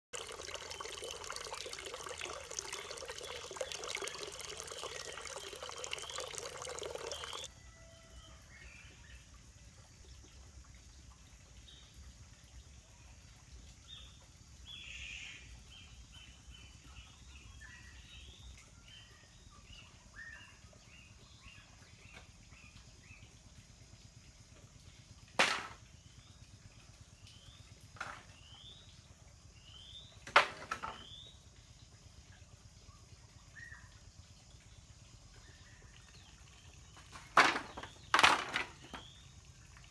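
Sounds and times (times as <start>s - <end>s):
water pouring into clay pot: 0.1s - 7.5s
birds chirping faintly: 0.2s - 7.5s.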